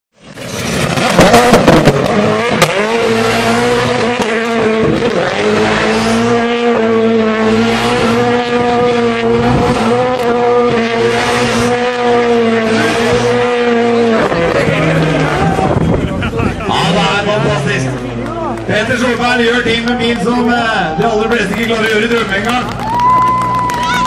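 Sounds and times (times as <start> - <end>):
rally car engine high revs: 0.4 - 22.5.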